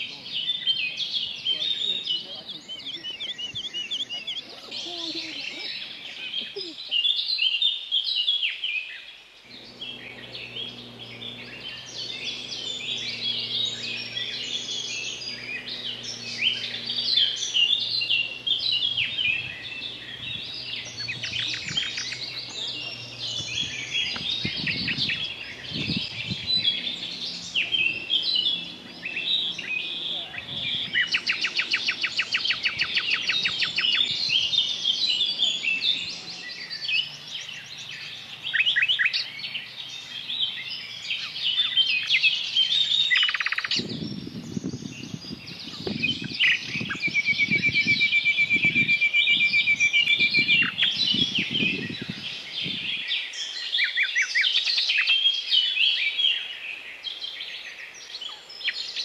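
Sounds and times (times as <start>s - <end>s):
songbirds chirping and trilling: 0.0s - 59.0s
faint low hum: 9.5s - 38.5s.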